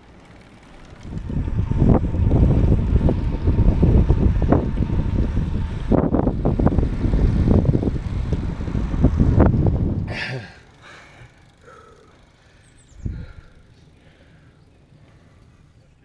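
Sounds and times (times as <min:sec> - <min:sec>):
wind buffeting microphone: 0:00.9 - 0:10.5, 0:12.8 - 0:13.6.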